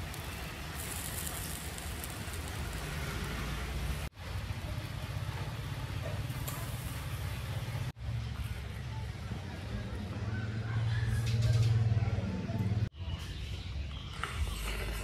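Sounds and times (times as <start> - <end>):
fish sizzling on charcoal grill: 0.0 - 7.9.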